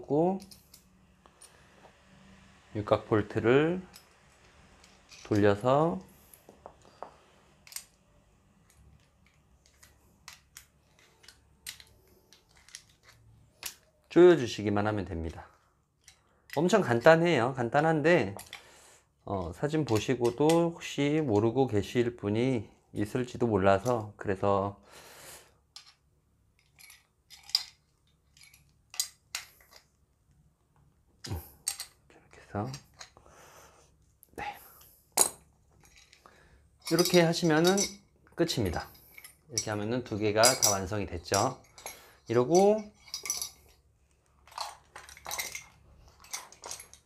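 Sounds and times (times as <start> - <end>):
wrench clinking on metal nut: 36.8 - 38.0, 38.8 - 43.7, 44.5 - 47.0.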